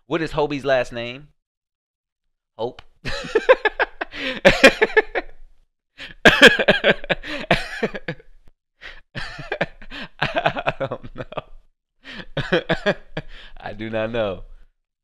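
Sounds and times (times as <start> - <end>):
man laughing hard: 3.1 - 5.4, 6.0 - 13.5.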